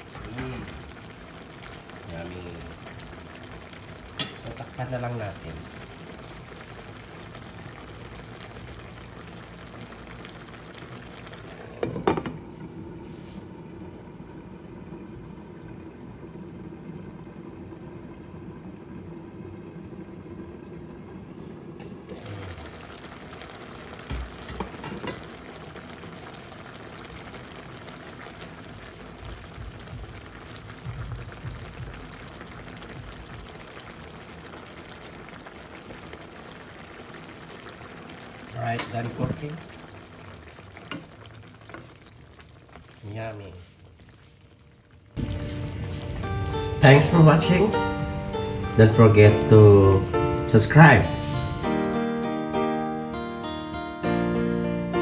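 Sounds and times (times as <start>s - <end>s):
stew bubbling in a pan: 0.0s - 51.6s
glass lid clattering: 24.6s - 25.2s.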